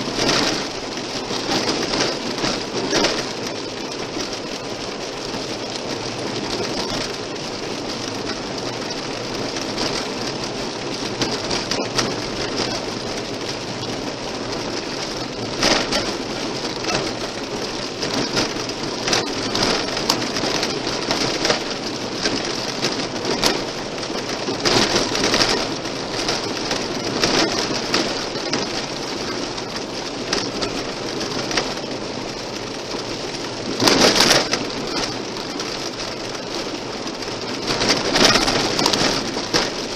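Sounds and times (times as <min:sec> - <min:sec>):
stones ticking against car: 0:00.0 - 0:39.9
tyres rolling on gravel: 0:00.0 - 0:39.9.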